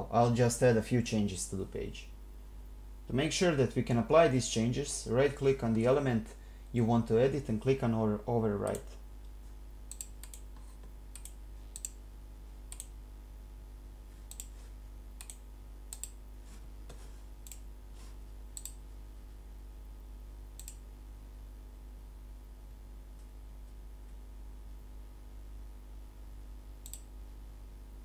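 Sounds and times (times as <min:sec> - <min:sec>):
steady low hum: 0:00.0 - 0:28.0
computer mouse clicking: 0:08.6 - 0:08.9, 0:09.9 - 0:12.0, 0:12.7 - 0:13.0, 0:14.3 - 0:14.6, 0:15.2 - 0:16.2, 0:17.4 - 0:17.6, 0:18.6 - 0:18.8, 0:20.6 - 0:20.8, 0:26.8 - 0:27.1.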